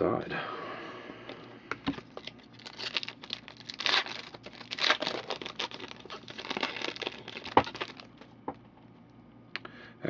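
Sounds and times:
foil wrapper tearing and crinkling: 0:02.1 - 0:08.2.

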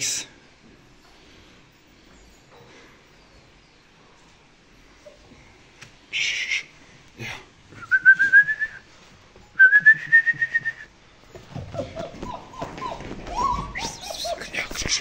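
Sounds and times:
person whistling: 0:07.8 - 0:08.9, 0:09.6 - 0:10.9
puppy whimpering: 0:11.5 - 0:14.8.

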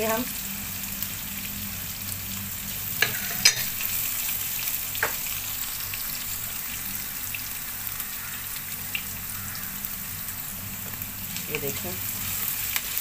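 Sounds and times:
food sizzling in oil: 0:00.0 - 0:13.0
spatula stirring: 0:03.0 - 0:04.0.

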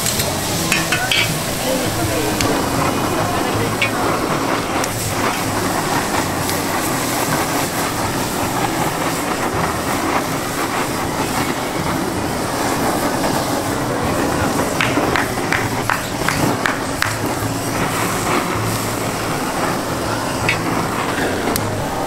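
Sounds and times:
metal spatula scraping: 0:00.0 - 0:04.2
blowtorch hissing: 0:00.0 - 0:22.0
frying sizzle: 0:00.0 - 0:22.0.

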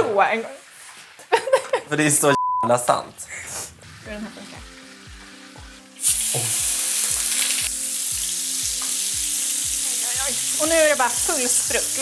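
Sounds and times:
background music with beat: 0:03.7 - 0:12.0
steak sizzling in frying pan: 0:03.9 - 0:12.0.

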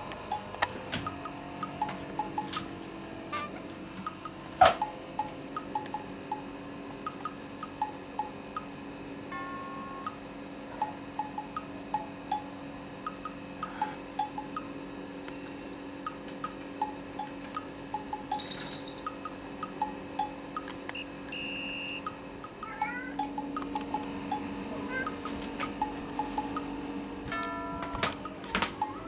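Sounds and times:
light bell-like music: 0:09.3 - 0:14.7, 0:15.3 - 0:16.2, 0:23.2 - 0:29.0.

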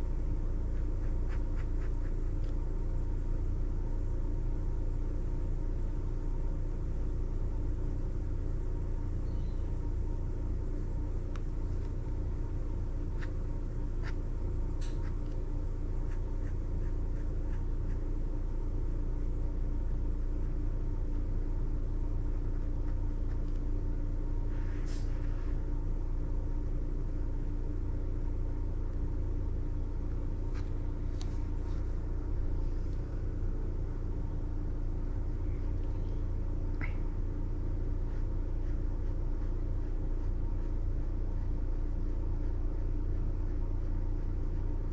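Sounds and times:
faint steady hum: 0:00.0 - 0:44.9
low background rumble: 0:00.0 - 0:44.9
pen scratching on paper: 0:00.7 - 0:02.5.

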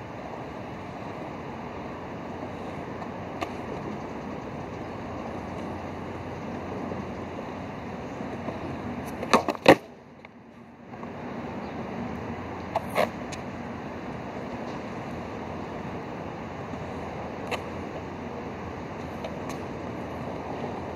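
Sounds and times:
steady background hiss: 0:00.0 - 0:20.9
skateboard clacking on concrete: 0:03.0 - 0:07.0, 0:08.3 - 0:11.1, 0:12.6 - 0:13.5, 0:17.4 - 0:17.7, 0:19.0 - 0:19.9.

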